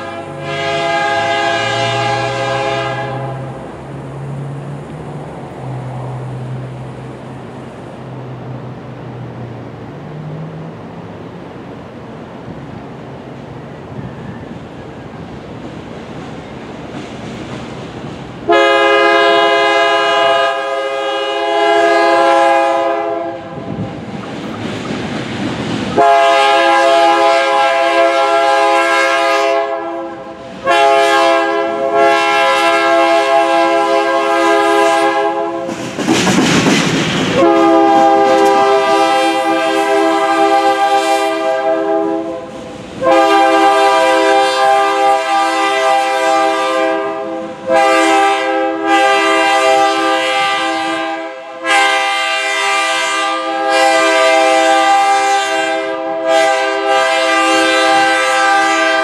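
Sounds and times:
locomotive air horn blasts: 0.0s - 3.6s, 18.4s - 23.8s, 26.0s - 35.8s, 37.3s - 59.0s.

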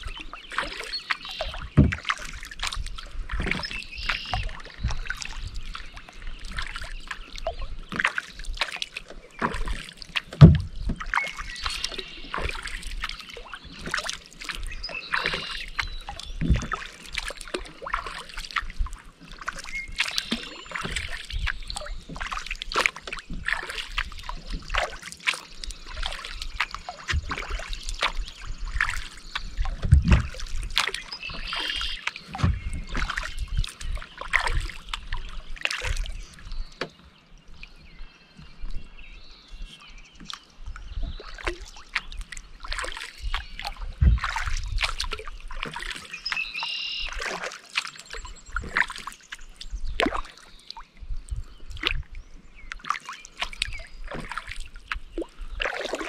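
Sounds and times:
water dripping off paddle: 0.0s - 37.8s, 39.6s - 56.0s
paddle blades dipping in water: 0.0s - 56.0s
low thumps: 10.4s - 11.0s, 29.7s - 30.5s, 32.3s - 33.2s, 44.0s - 44.3s.

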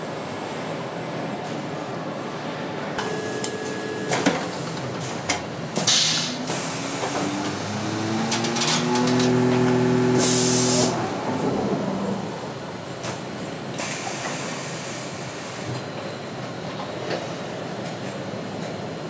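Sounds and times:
machine whine: 6.2s - 13.0s
compressed air hisses: 10.2s - 11.0s.

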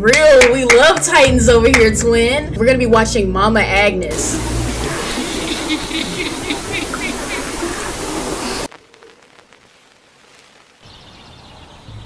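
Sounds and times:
tv static hiss: 4.1s - 11.6s.

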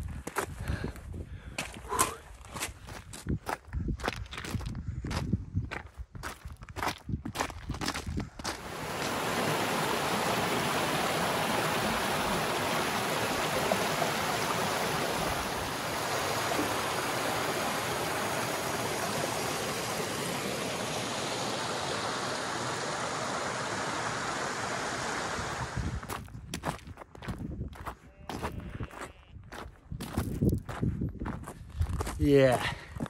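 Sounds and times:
stream rushing over rocks: 8.5s - 26.0s.

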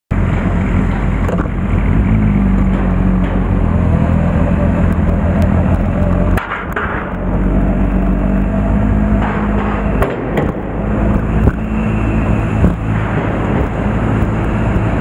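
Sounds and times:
motorcycle engine running: 0.1s - 9.9s.

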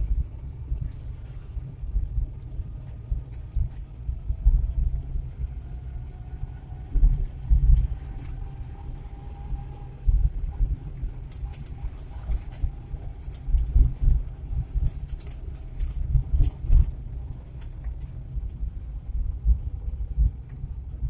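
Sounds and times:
engine and road rumble: 0.0s - 21.0s
clicks and rattles in cab: 10.7s - 18.6s.

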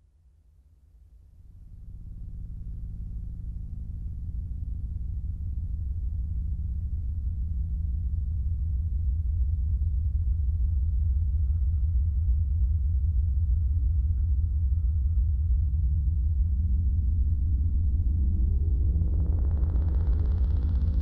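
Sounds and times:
dark ambient drone music: 11.5s - 21.0s.

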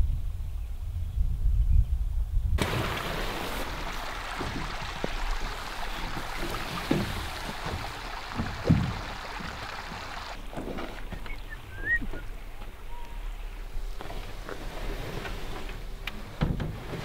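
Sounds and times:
steady rushing hiss: 2.6s - 10.5s
aluminum canoe knocks: 4.3s - 11.3s.

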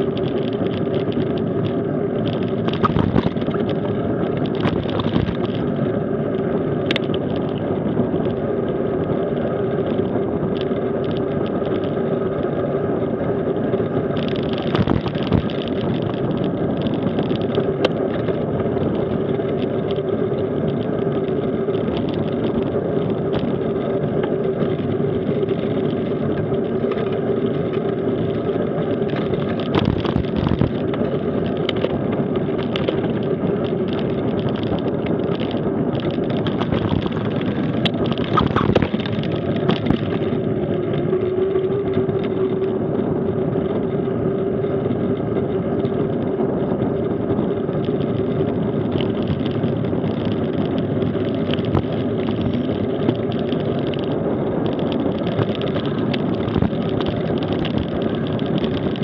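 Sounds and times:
bike knocking and rattling: 0.0s - 59.0s
bike tyres humming on asphalt: 0.0s - 59.0s.

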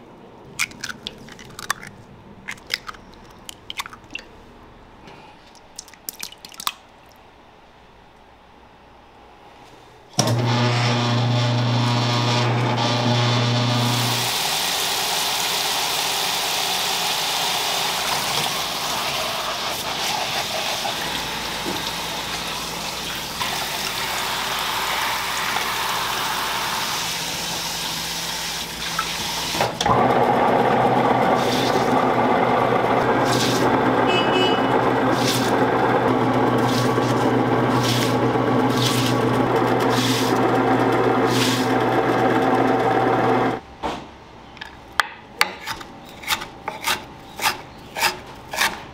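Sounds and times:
tap water spraying: 17.9s - 27.4s, 28.3s - 29.7s.

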